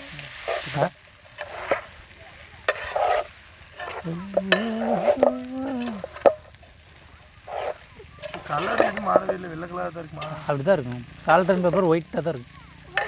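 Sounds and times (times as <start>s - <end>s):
food sizzling: 0.0s - 13.0s
metal ladle scraping a pot: 1.4s - 1.9s, 2.7s - 6.6s, 7.4s - 9.5s.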